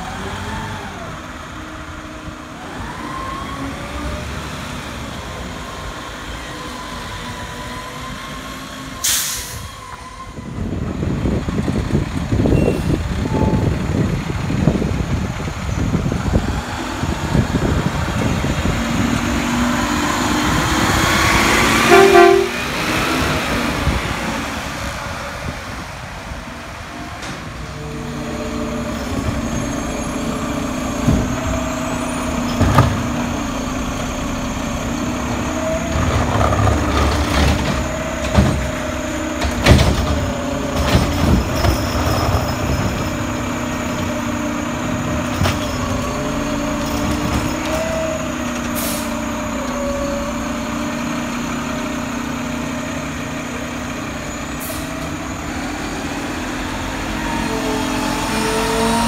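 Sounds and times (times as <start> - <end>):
diesel truck engines: 0.0 - 59.0
brief loud tone: 12.6 - 13.5, 21.8 - 22.7.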